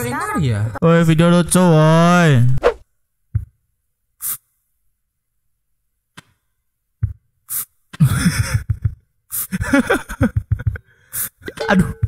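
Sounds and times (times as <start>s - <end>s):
person speaking: 11.5s - 12.0s.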